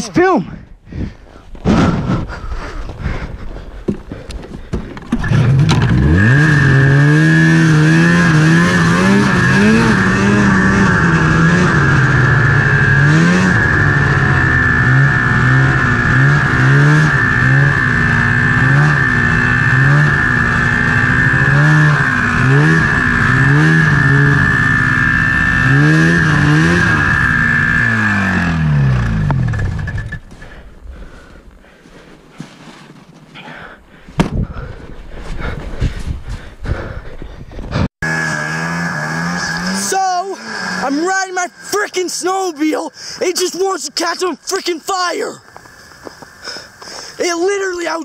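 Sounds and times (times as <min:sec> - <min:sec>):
snowmobile engine revving: 0:05.1 - 0:31.5, 0:37.7 - 0:48.0.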